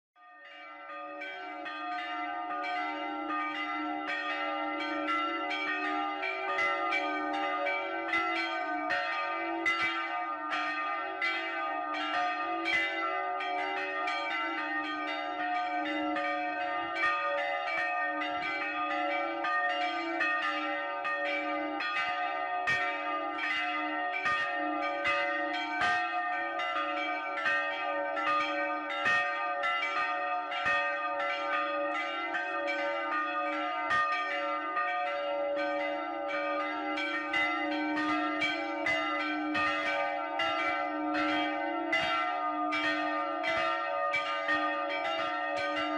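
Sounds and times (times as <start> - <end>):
church bells ringing: 0.2 - 45.9.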